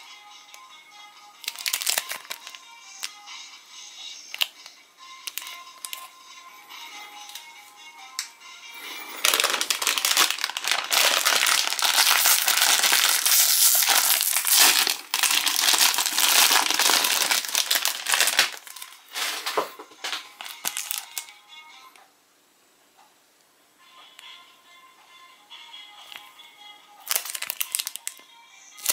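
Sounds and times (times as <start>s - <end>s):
plastic wrapper crinkling: 1.4s - 3.1s, 4.3s - 6.1s, 8.9s - 21.4s, 27.0s - 28.2s.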